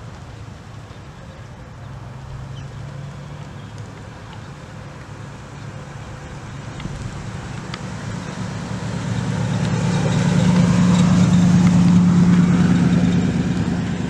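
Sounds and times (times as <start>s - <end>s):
car driving past: 6.5s - 14.0s.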